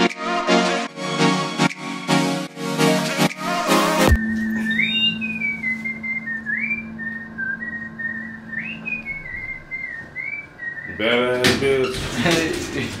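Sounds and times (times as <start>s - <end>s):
person whistling a tune: 4.1s - 11.0s
low steady hum: 4.2s - 11.3s.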